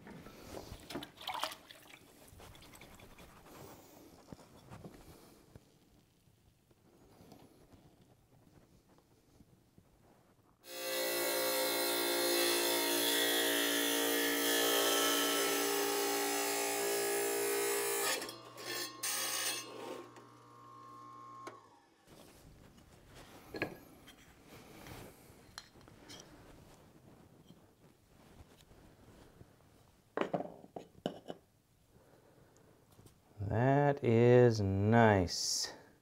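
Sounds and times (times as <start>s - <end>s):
power saw cutting brick: 10.7s - 21.6s.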